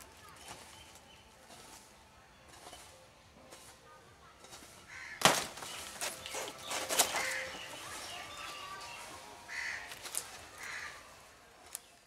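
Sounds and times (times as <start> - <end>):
stiff leaf rustling: 4.4 - 12.0
crows cawing: 4.9 - 5.3, 7.0 - 7.7, 9.5 - 11.2.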